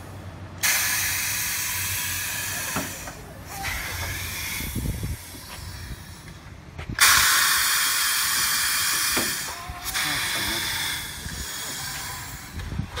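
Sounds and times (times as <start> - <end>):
compressed air hissing: 0.6 - 12.9.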